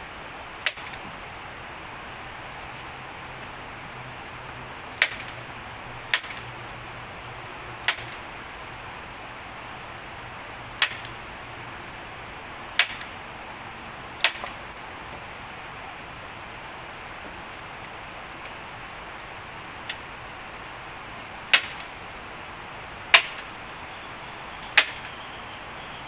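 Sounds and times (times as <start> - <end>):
steady background hiss: 0.0 - 26.0
hand tool striking wood: 5.0 - 5.4, 7.9 - 8.2, 21.5 - 21.8, 23.2 - 23.4.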